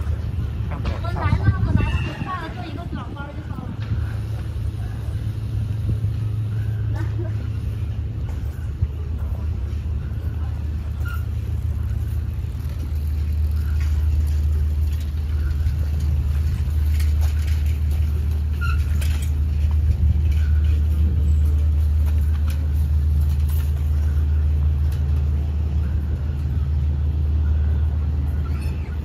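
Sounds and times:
low ferry engine drone: 0.0s - 29.0s.

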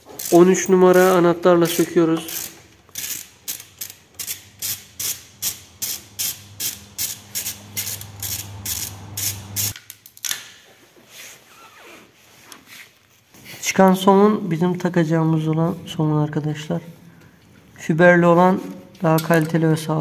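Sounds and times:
ratchet wrench clicking: 0.0s - 10.4s.

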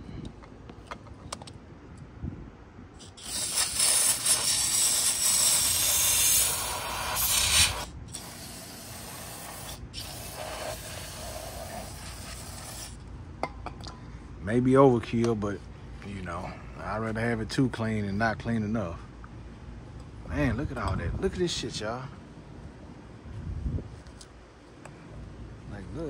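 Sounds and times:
aerosol spray hissing: 3.0s - 13.0s.

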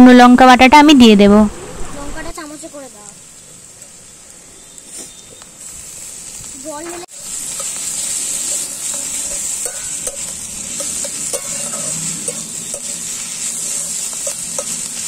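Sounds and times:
onions sizzling in hot oil: 2.2s - 15.0s
metal spatula scraping a pan: 7.2s - 15.0s.

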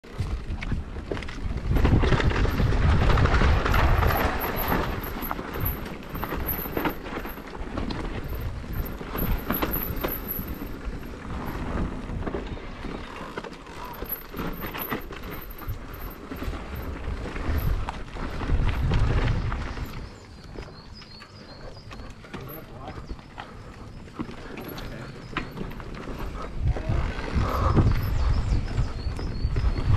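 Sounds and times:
wind rumble on microphone: 0.0s - 13.2s, 13.9s - 29.9s
bike clattering over rocky trail: 0.1s - 21.4s, 22.2s - 28.3s.

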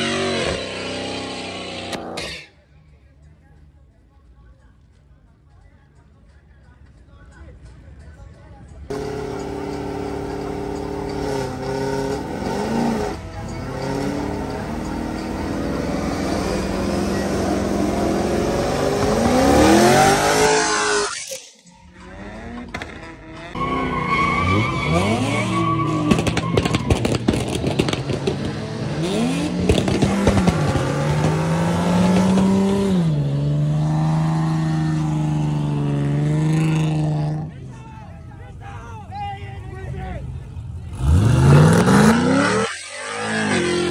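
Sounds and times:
car engines revving: 0.0s - 2.3s, 8.9s - 37.7s, 40.2s - 43.9s
tyre squeal: 20.2s - 21.5s, 23.4s - 27.2s, 42.0s - 43.9s
engine pops and crackles: 26.1s - 28.6s, 29.6s - 31.4s.

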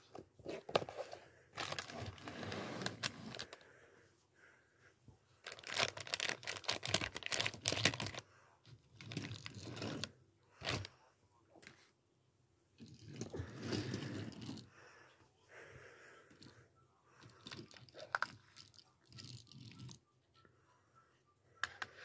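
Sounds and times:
plastic bag crinkling: 1.6s - 3.6s, 5.4s - 8.2s.

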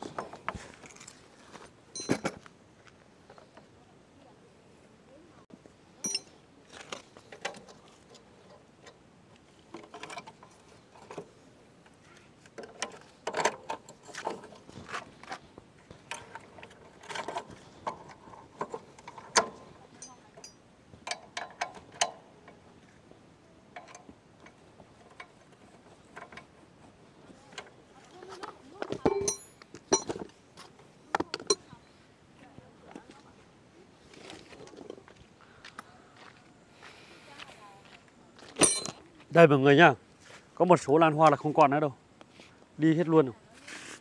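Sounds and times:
metallic clinks of tools: 2.0s - 2.3s, 6.0s - 6.3s, 29.0s - 30.2s, 38.6s - 39.0s.

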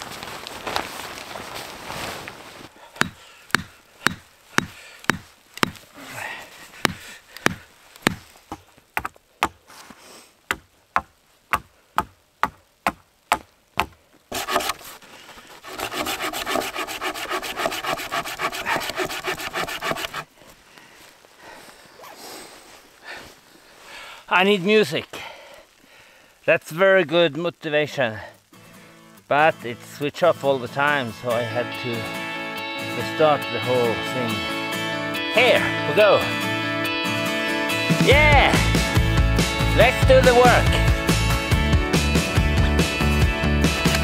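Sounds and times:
blade hacking wooden pole: 3.0s - 5.8s, 6.8s - 9.6s, 10.5s - 14.8s, 15.7s - 20.2s
saw cutting wood: 14.3s - 14.9s, 15.6s - 20.3s.

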